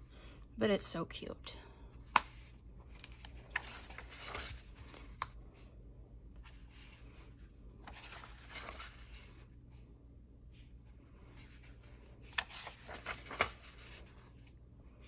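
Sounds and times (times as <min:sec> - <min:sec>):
paper pages rustling: 0:02.0 - 0:05.4, 0:06.4 - 0:09.6, 0:10.6 - 0:14.6.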